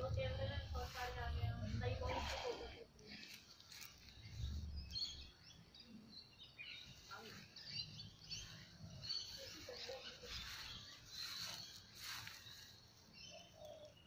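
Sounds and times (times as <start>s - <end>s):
low background rumble: 0.0s - 2.8s
faint bird chirps: 3.4s - 14.0s.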